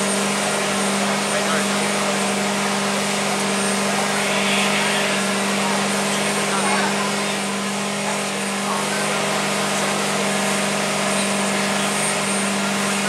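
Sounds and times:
engine and machine rush: 0:00.0 - 0:13.0
hydraulic pump hum: 0:00.0 - 0:13.0.

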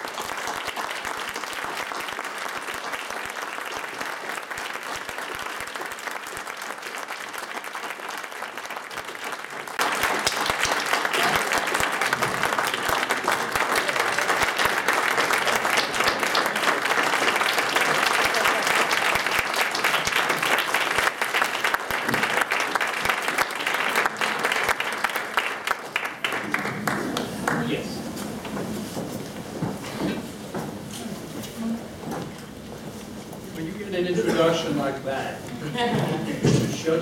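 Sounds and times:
audience applauding: 0:00.0 - 0:28.5.

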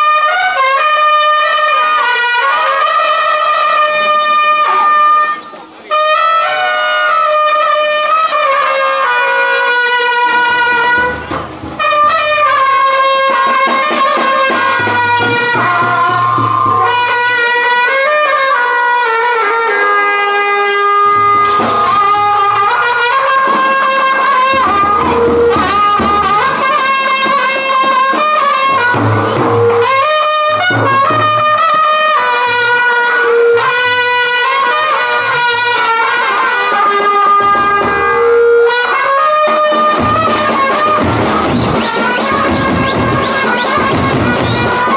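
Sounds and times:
trumpets playing melody: 0:00.0 - 0:44.9
bass drums beating: 0:14.0 - 0:17.8, 0:21.1 - 0:27.4, 0:28.6 - 0:31.9, 0:39.9 - 0:44.9.

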